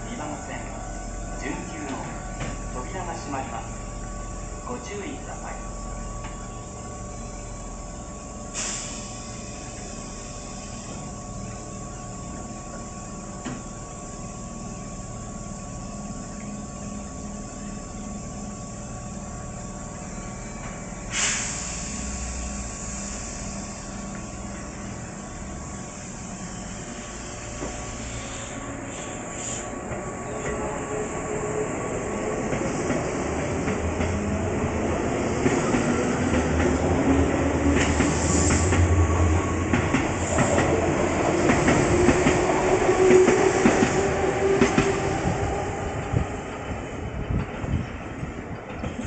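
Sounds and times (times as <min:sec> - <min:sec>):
train machinery hum: 0:00.0 - 0:49.0
train moving off: 0:00.0 - 0:49.0
compressed air hiss: 0:08.5 - 0:10.7, 0:21.1 - 0:23.9, 0:27.8 - 0:29.7.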